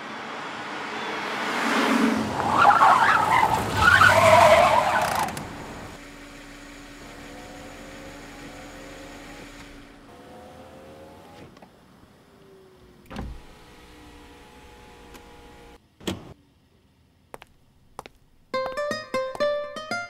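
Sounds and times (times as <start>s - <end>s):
car tyres skidding and squealing: 0.0s - 6.0s.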